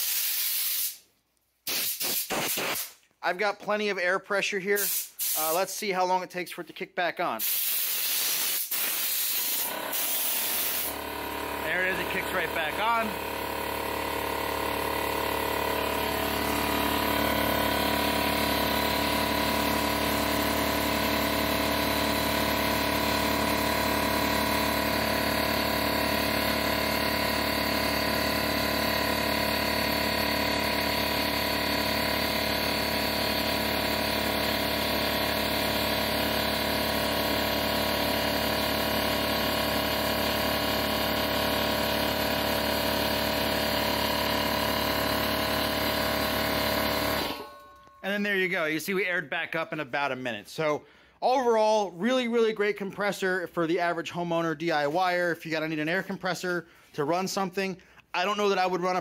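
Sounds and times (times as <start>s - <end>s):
compressor hiss: 0.0s - 3.0s, 4.8s - 5.8s, 7.3s - 46.8s
air compressor running: 0.0s - 3.4s, 4.6s - 5.8s, 7.2s - 48.1s, 50.6s - 52.7s, 56.3s - 59.0s.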